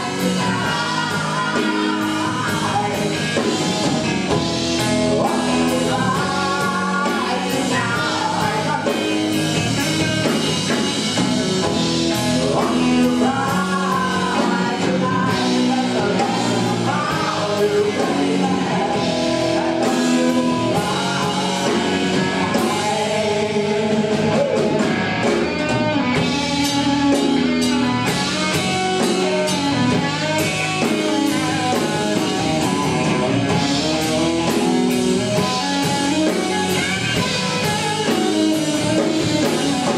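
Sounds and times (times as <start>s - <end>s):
man singing: 0.0s - 3.5s, 4.8s - 10.4s, 12.1s - 25.0s
rock band playing: 0.0s - 39.9s.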